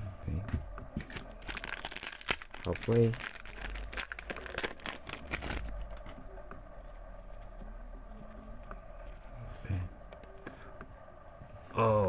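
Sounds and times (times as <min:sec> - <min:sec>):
cards rustling: 0:01.0 - 0:06.2
wrapper tearing and crinkling: 0:01.0 - 0:06.2.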